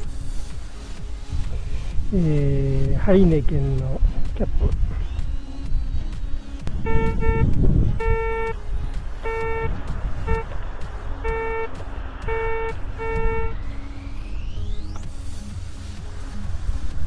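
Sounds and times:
metal detector buzzing beeps: 0:06.8 - 0:08.6, 0:09.2 - 0:10.5, 0:11.2 - 0:13.6.

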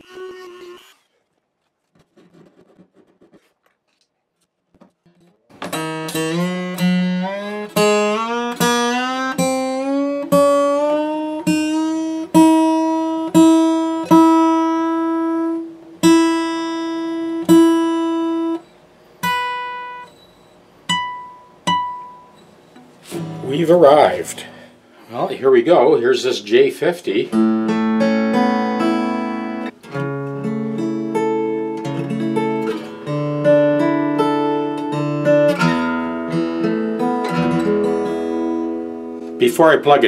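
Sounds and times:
acoustic guitar string plucked: 0:05.1 - 0:18.6, 0:20.9 - 0:24.8, 0:27.3 - 0:40.0.

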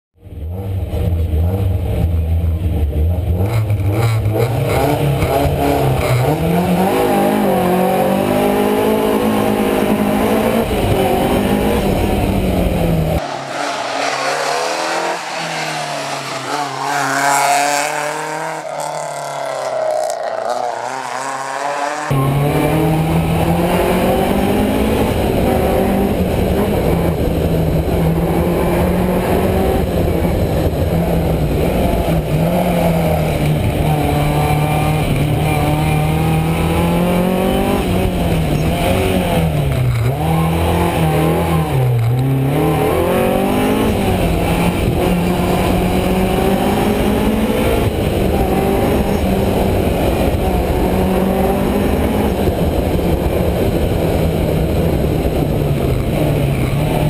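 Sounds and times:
car accelerating past roadside: 0:03.4 - 0:55.1
car engine revving inside car: 0:20.6 - 0:57.0.

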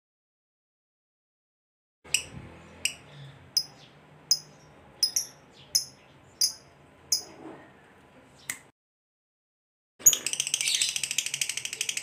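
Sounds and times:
lovebird high-pitched chirps: 0:02.1 - 0:07.3, 0:10.0 - 0:12.0.

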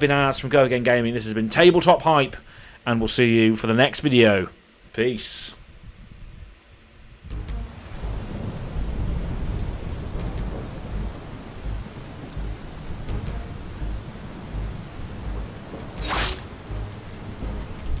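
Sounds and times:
heavy rain: 0:07.3 - 0:18.0
rolling thunder: 0:07.6 - 0:18.0.

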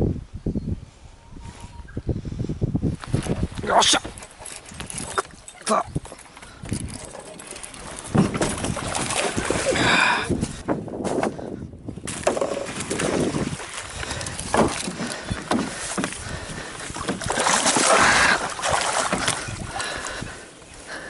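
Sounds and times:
fish thrashing and splashing: 0:06.1 - 0:10.2, 0:12.1 - 0:20.4
net and gear knocking: 0:12.1 - 0:16.3.

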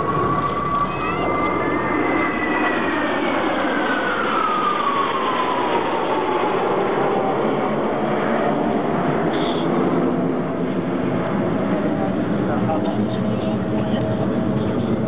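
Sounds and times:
jet engines roaring overhead: 0:00.0 - 0:15.0.

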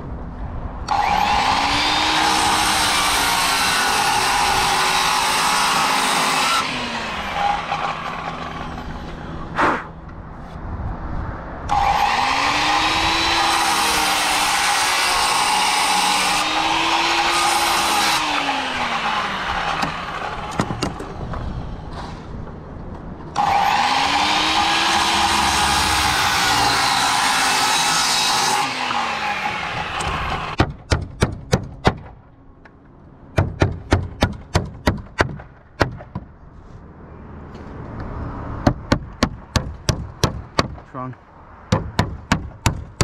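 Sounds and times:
circular saw cutting wood: 0:00.9 - 0:09.6, 0:11.7 - 0:21.2, 0:23.4 - 0:30.6.

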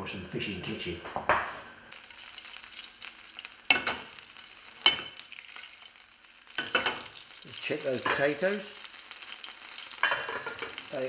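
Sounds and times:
butter sizzling in frying pan: 0:01.9 - 0:11.0.

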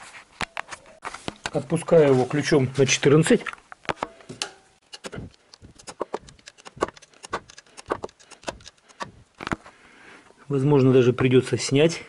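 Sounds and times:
socket wrench clicking: 0:04.9 - 0:09.1.

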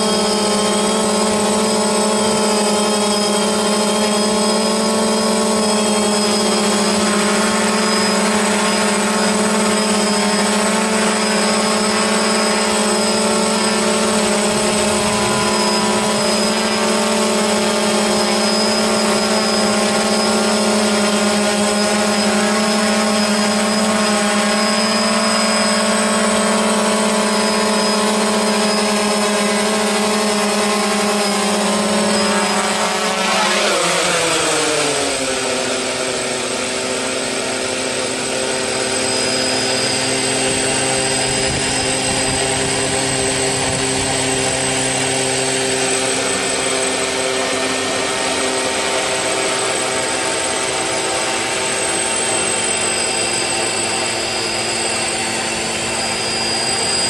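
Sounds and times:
drone propellers whining: 0:00.0 - 0:57.0.

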